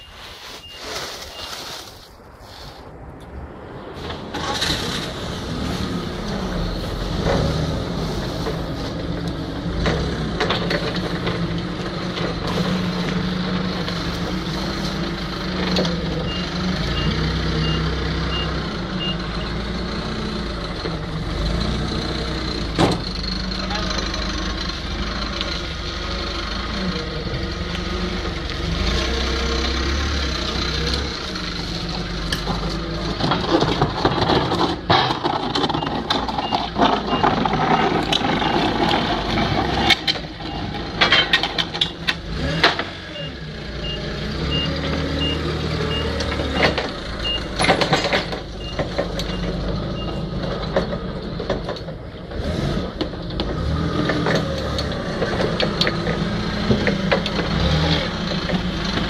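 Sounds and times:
reversing alarm beeps: 0.0 - 1.6, 43.2 - 46.2, 47.2 - 47.5
forklift engine running: 4.0 - 59.0.

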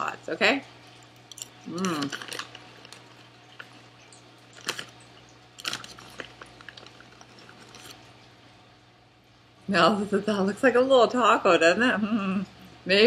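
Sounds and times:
chip bag crinkling: 1.1 - 8.2.

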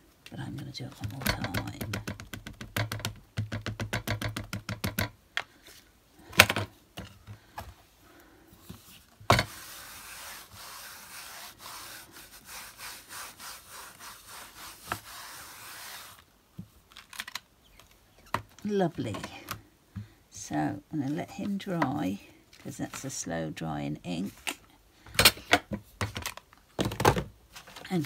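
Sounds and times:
ink pad tapping on stamp: 1.2 - 5.1
hand rubbing: 8.8 - 16.3.

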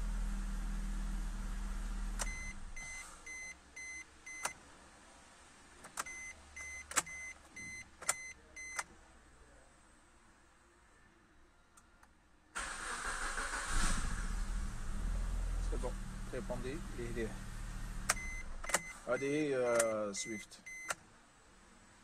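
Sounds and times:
car engine idling: 0.0 - 2.8, 12.6 - 18.7
ignition switch clicks: 2.2 - 2.4, 8.0 - 8.9, 18.0 - 18.9, 19.7 - 20.0, 20.7 - 21.0
dashboard warning chime beeping: 2.2 - 4.6, 6.1 - 8.9, 18.1 - 21.0.

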